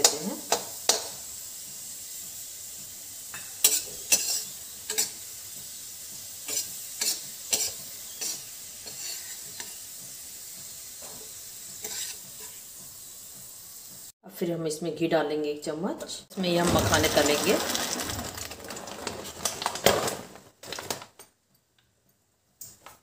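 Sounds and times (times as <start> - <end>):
raisins sizzling in oil: 0.0 - 14.2.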